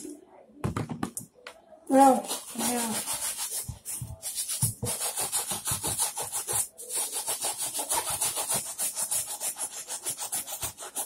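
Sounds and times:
brush scrubbing a sneaker: 2.2s - 11.0s.

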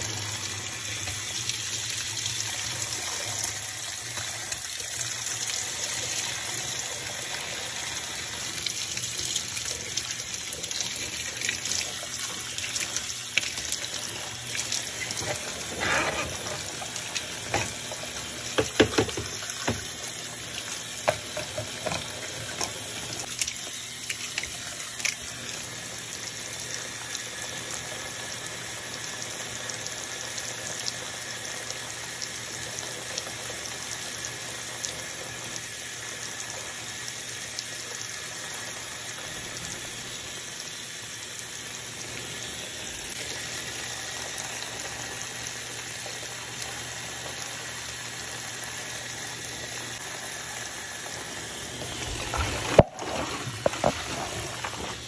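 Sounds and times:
water hissing into washing machine: 0.0s - 55.0s
foam fizzing: 50.0s - 55.0s.

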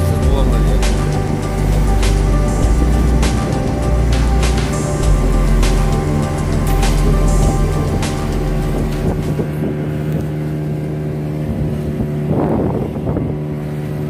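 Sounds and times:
boat engine droning: 0.0s - 14.0s.

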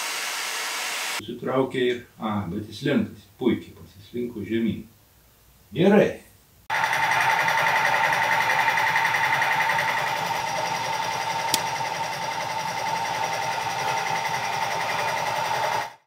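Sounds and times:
heat gun fan whining: 6.7s - 15.8s.

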